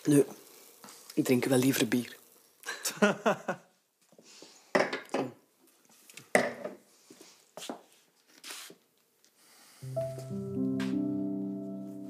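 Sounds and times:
people breathing: 4.2s - 4.8s, 9.4s - 9.9s
soft background music chords: 9.8s - 12.0s.

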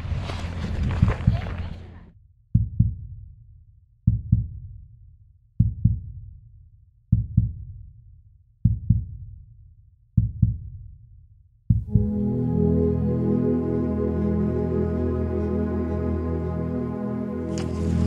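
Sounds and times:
heartbeat thumps: 2.5s - 3.1s, 4.1s - 4.6s, 5.6s - 6.1s, 7.1s - 7.6s, 8.6s - 9.2s, 10.2s - 10.7s, 11.7s - 12.2s.

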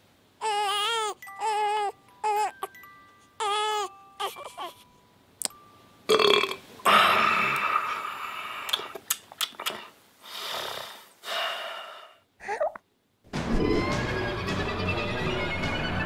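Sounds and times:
man burping loudly: 6.1s - 8.0s.

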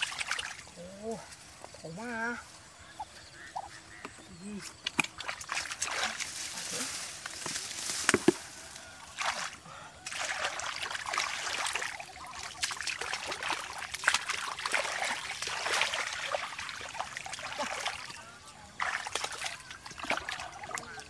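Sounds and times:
hands splashing in muddy water: 4.8s - 21.0s.

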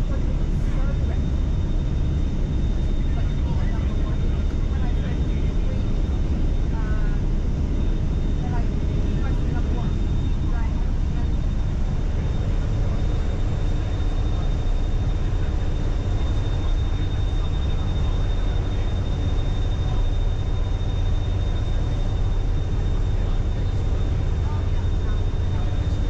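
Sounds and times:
hovercraft engine drone: 0.0s - 26.0s.

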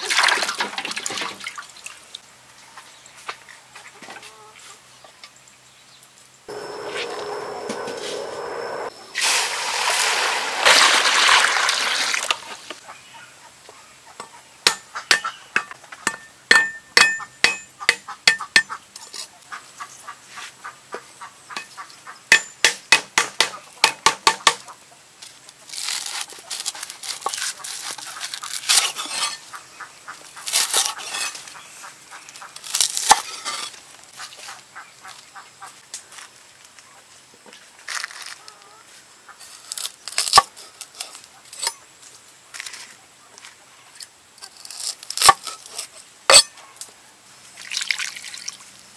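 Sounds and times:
loud rushing noise: 6.5s - 11.0s.

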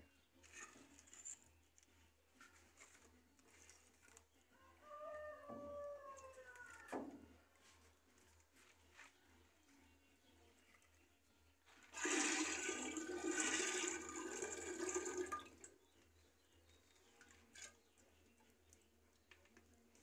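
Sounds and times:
kernels splashing into water: 12.0s - 15.7s.

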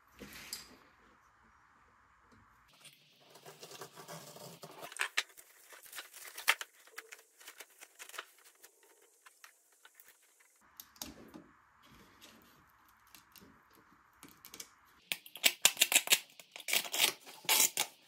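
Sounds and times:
plastic wrap crinkling and tearing: 3.2s - 10.6s, 15.1s - 18.0s.

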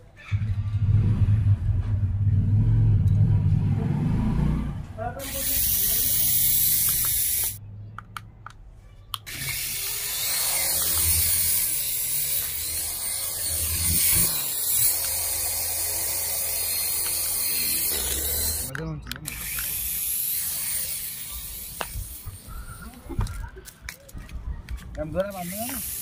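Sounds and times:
toy helicopter rotors whirring: 5.2s - 7.6s, 9.2s - 23.5s, 25.1s - 26.0s.

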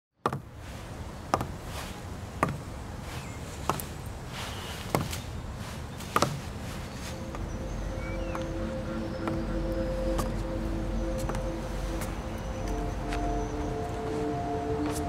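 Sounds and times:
steady low background rumble: 0.4s - 15.0s
boot heels on wooden decking: 1.2s - 7.5s, 11.1s - 14.2s.

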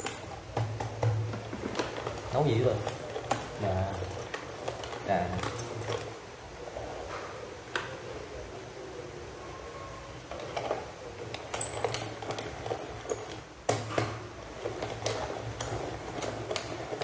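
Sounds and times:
pepper mill grinding: 0.0s - 0.4s, 2.0s - 5.8s, 11.4s - 13.4s.

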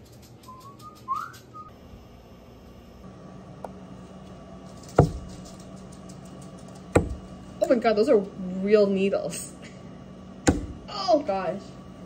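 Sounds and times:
dart striking dartboard: 5.0s - 5.2s, 7.0s - 7.2s, 10.5s - 10.8s.

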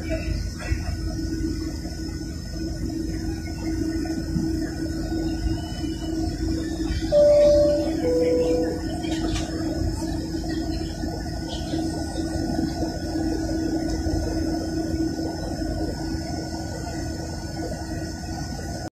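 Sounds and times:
jet engine rumble in cabin: 0.0s - 18.9s.

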